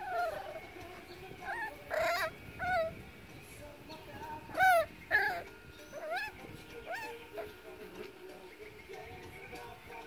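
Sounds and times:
puppy yipping and whining: 0:00.0 - 0:00.6, 0:01.4 - 0:03.0, 0:04.5 - 0:07.5.

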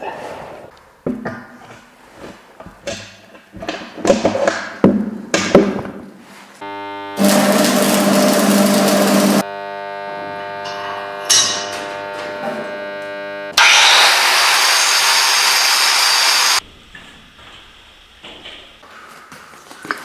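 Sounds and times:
arc welding crackling: 0:06.6 - 0:13.6
angle grinder grinding steel: 0:06.6 - 0:16.6
welding transformer hum: 0:06.6 - 0:18.8.

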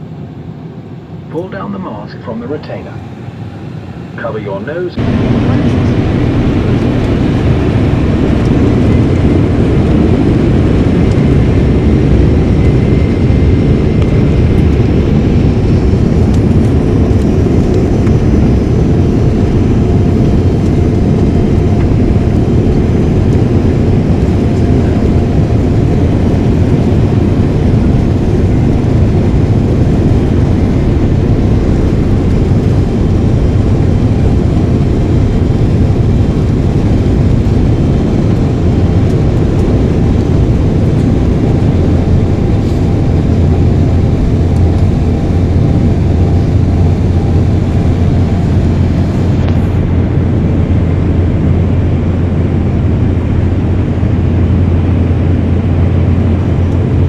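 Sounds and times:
faint engine whine: 0:00.0 - 0:57.0
jet engine roar in cabin: 0:00.0 - 0:57.0.

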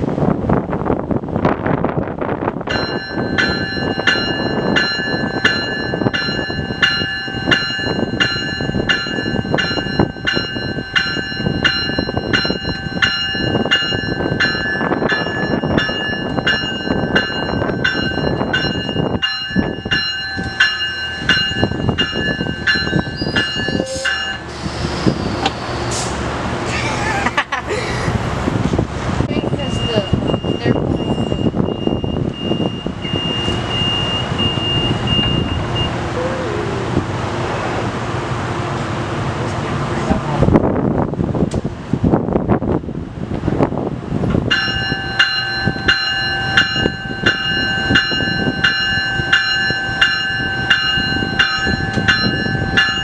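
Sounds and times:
train rumbling: 0:00.0 - 0:53.0
railroad bell ringing: 0:02.6 - 0:25.9, 0:29.3 - 0:36.6, 0:44.4 - 0:53.0.

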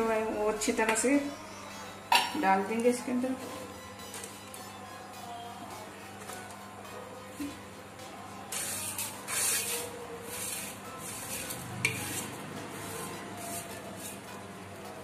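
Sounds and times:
dry noodles scraped off plate: 0:08.5 - 0:14.2.

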